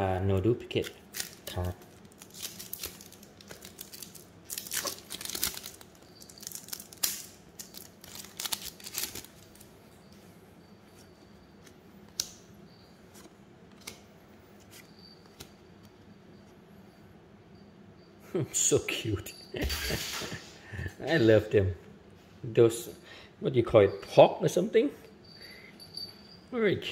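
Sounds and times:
wrapper tearing and crinkling: 0:00.8 - 0:09.6.

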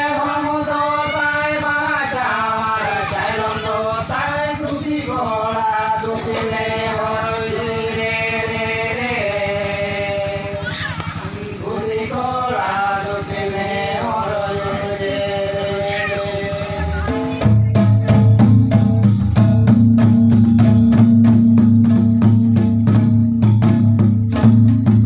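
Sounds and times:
men singing into a microphone: 0:00.0 - 0:17.2.

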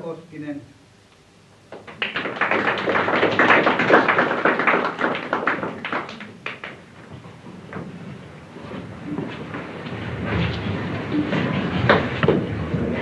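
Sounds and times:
audience applauding: 0:01.7 - 0:07.1.

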